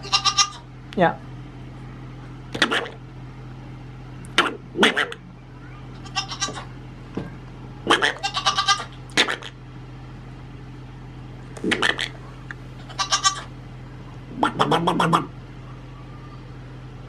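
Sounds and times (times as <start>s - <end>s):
goat kid bleating: 0.0s - 0.7s, 5.9s - 6.7s, 7.9s - 9.5s, 12.8s - 13.5s.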